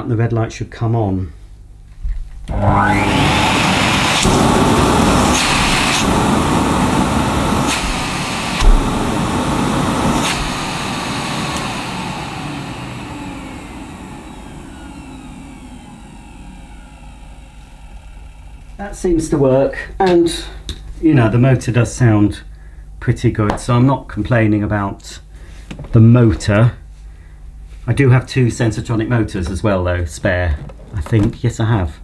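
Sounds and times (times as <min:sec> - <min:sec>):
vacuum cleaner running: 0:02.5 - 0:19.7
knocks and thump: 0:08.6 - 0:09.0.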